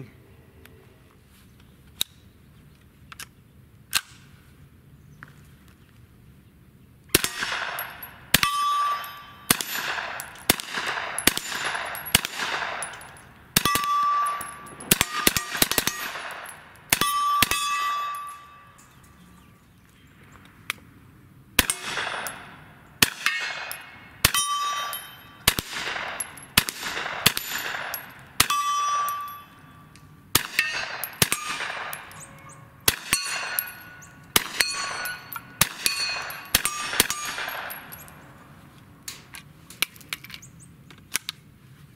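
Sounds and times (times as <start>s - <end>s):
gunshots: 7.2s - 8.5s, 9.5s - 17.7s, 21.6s - 29.1s, 30.3s - 38.0s
steel target ringing: 7.2s - 19.2s, 21.6s - 38.2s.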